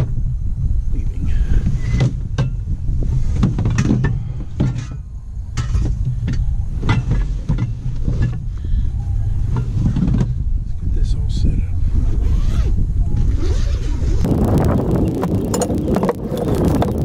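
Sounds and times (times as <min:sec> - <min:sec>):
steady low rumble: 0:00.0 - 0:17.0
gear knocking and clicking: 0:14.3 - 0:17.0.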